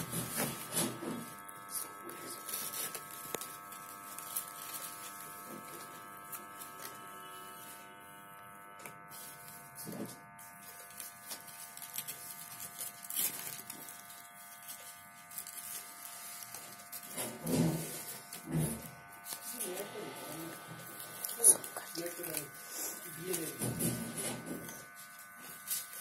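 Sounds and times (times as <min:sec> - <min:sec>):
steady buzzing hum: 0:00.0 - 0:26.0
paper rustling: 0:09.1 - 0:22.5.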